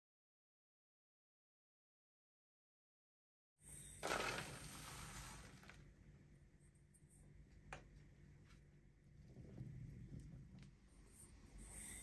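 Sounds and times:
dough pouring with rustling hiss: 0:04.0 - 0:05.8.

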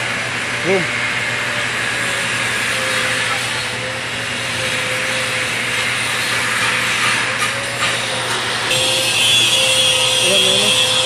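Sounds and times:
power tool motor running: 0:01.0 - 0:11.0.

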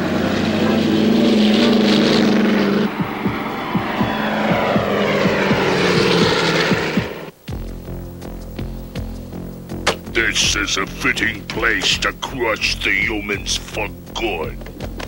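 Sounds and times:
cartoon engine roar effect: 0:00.0 - 0:07.4.

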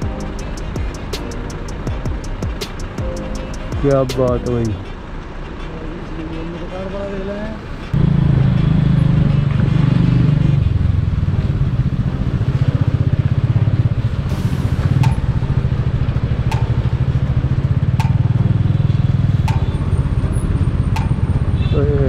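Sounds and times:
motorcycle engine running: 0:08.0 - 0:14.2.

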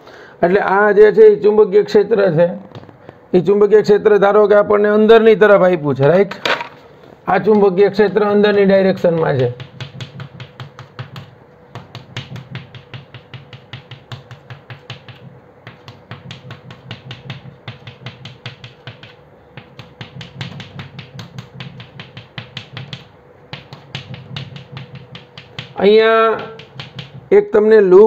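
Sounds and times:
chalk tapping on blackboard: 0:09.0 - 0:27.3.

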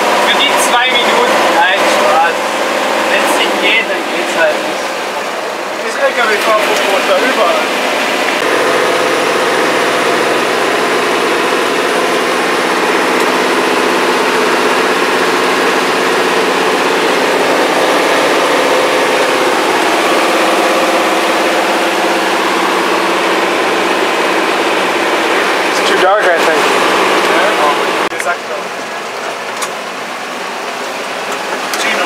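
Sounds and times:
truck engine running: 0:00.0 - 0:32.0.

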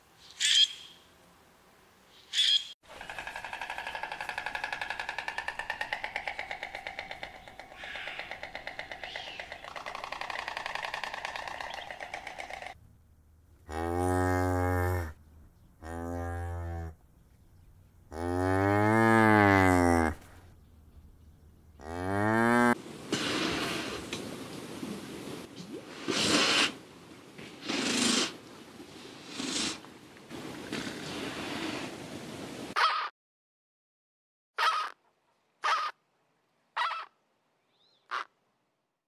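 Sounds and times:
cattle mooing: 0:13.7 - 0:15.2, 0:15.8 - 0:17.0, 0:18.1 - 0:20.2, 0:21.8 - 0:22.8.

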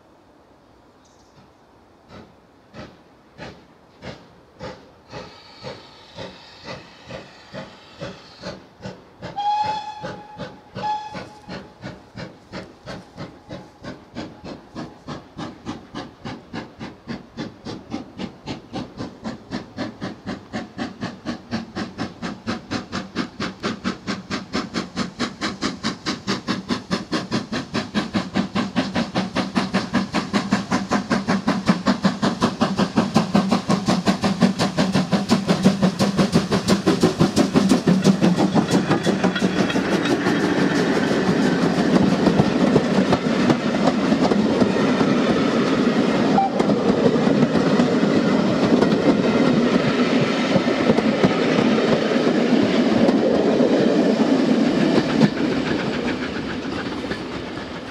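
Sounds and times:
hiss of steam: 0:00.0 - 0:57.9
steam locomotive exhaust chuffs: 0:01.0 - 0:57.9
steam whistle blasts: 0:05.2 - 0:08.6, 0:09.3 - 0:11.8, 0:46.3 - 0:46.7.

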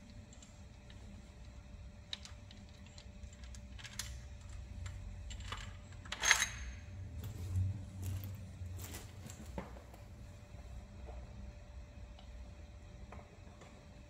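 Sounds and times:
metal tools clicking and clinking: 0:02.2 - 0:07.4.

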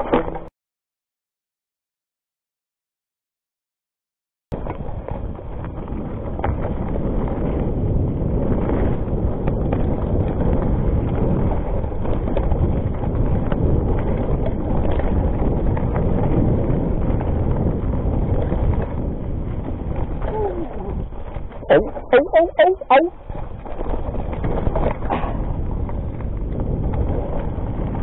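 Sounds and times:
bike rattling and clicking: 0:04.5 - 0:22.2, 0:23.1 - 0:28.0
wind buffeting microphone: 0:04.5 - 0:28.0
tyres rolling over rock and dirt: 0:04.6 - 0:22.1, 0:23.2 - 0:28.0.

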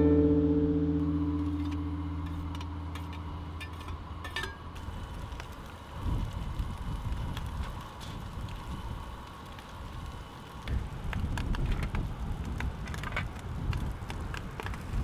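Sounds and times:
guitar chord: 0:00.0 - 0:04.6.

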